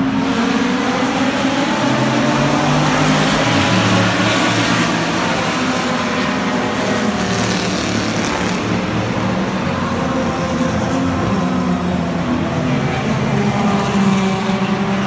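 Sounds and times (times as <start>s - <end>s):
racing car engines passing: 0.0s - 15.0s.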